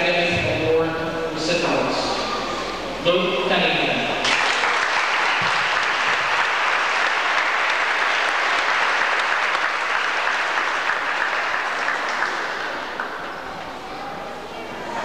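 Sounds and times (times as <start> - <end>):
audience applauding: 4.2 - 13.8.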